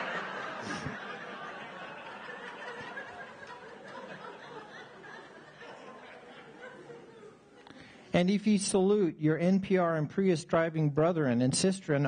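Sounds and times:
audience laughing: 0:00.0 - 0:07.8.

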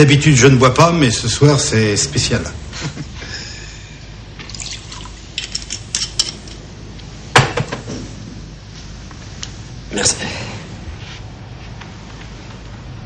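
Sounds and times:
drink pouring into glasses: 0:04.4 - 0:06.4.

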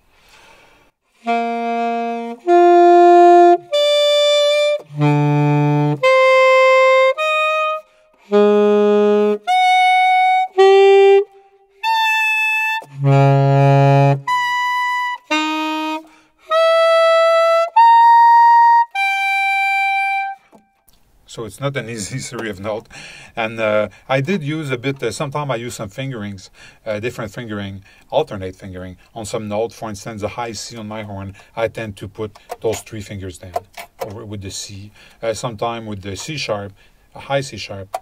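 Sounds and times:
alto saxophone notes: 0:01.2 - 0:20.8.

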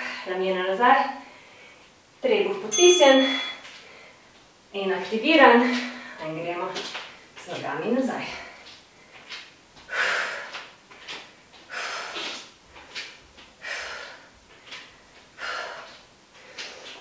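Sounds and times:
woman breathing hard: 0:08.2 - 0:10.8, 0:11.6 - 0:17.0.

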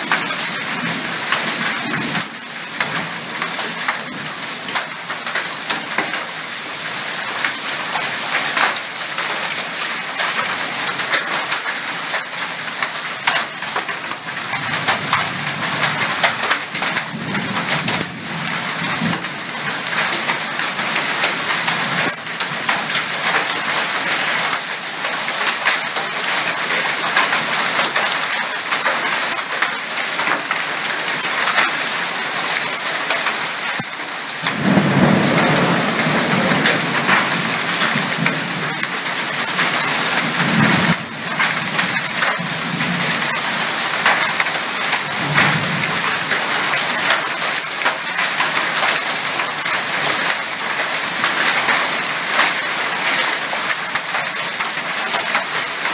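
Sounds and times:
heavy rain pouring: 0:00.0 - 0:55.9
thunder rumbling: 0:33.7 - 0:47.5.

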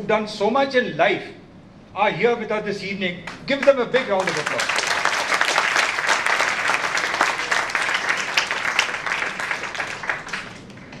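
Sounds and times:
audience clapping: 0:03.3 - 0:11.0.

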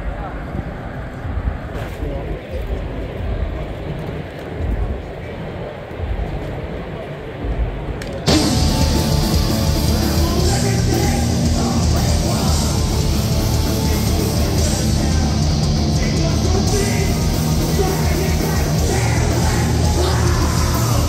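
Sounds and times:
hardcore band playing: 0:08.2 - 0:21.0.

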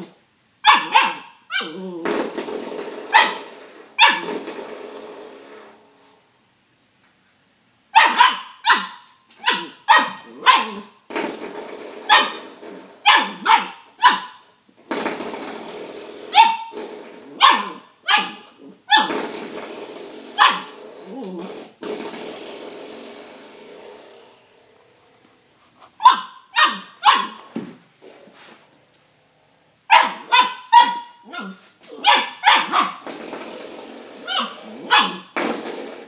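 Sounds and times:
puppy barking: 0:00.6 - 0:01.8, 0:03.1 - 0:04.3, 0:08.0 - 0:11.0, 0:12.1 - 0:12.4, 0:13.0 - 0:14.4, 0:16.3 - 0:16.8, 0:17.4 - 0:19.2, 0:20.4 - 0:20.8, 0:26.0 - 0:27.5, 0:29.9 - 0:33.0, 0:34.3 - 0:35.4.

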